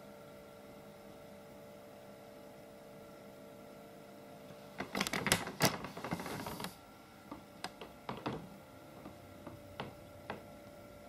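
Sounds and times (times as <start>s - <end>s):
faint steady hum: 0.0s - 11.0s
rustling and clicking: 4.8s - 10.4s.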